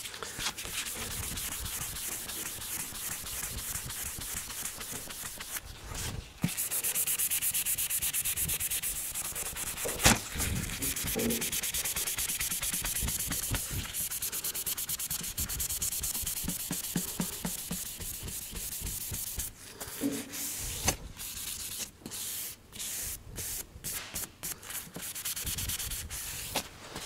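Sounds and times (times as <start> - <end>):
abrasive pad rubbing car paint: 0.6 - 5.5, 6.5 - 10.0, 10.6 - 20.2.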